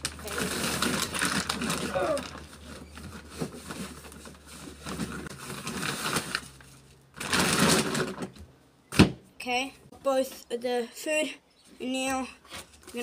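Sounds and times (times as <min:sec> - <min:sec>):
plastic feed bag rustling: 0:00.0 - 0:08.3.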